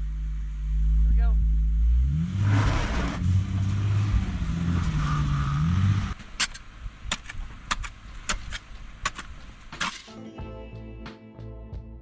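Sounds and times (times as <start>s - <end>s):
van engine revving: 0.0s - 6.2s.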